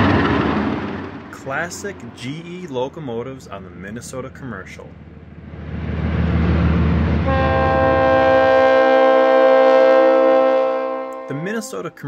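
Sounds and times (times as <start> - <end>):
diesel locomotive engine chugging: 0.0 - 12.0
locomotive horn blast: 7.2 - 12.0.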